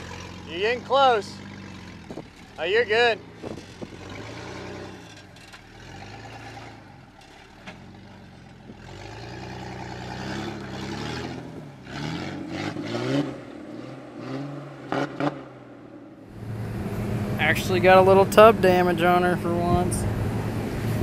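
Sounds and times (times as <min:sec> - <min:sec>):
engine revving under load: 0:00.0 - 0:21.0
tires knocking on rock: 0:01.7 - 0:02.6, 0:03.2 - 0:05.8.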